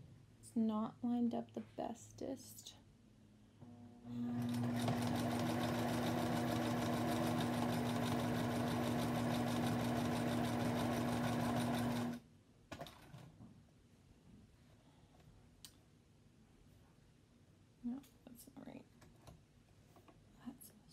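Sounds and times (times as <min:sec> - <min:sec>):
sewing machine stitching: 0:04.3 - 0:12.2.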